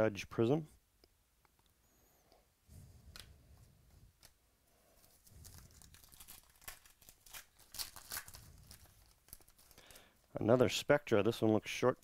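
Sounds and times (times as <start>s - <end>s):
cards rustling: 4.1s - 10.2s
wrapper crinkling and tearing: 5.0s - 10.1s.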